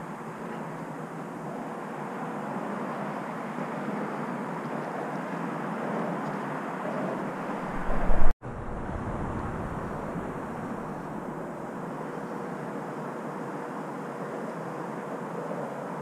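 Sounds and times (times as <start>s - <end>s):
distant traffic rumble: 7.6s - 12.0s
loud low rumble: 7.7s - 11.4s.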